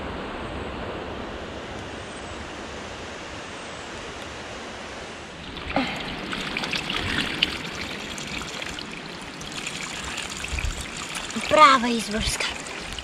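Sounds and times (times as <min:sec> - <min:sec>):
water splashing and trickling: 0:05.4 - 0:13.0.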